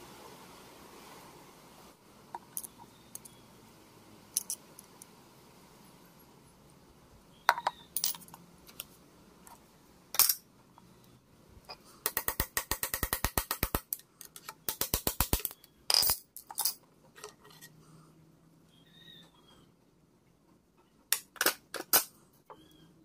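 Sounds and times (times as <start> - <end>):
metal tools clinking on iron: 10.2 - 10.4, 15.4 - 17.7.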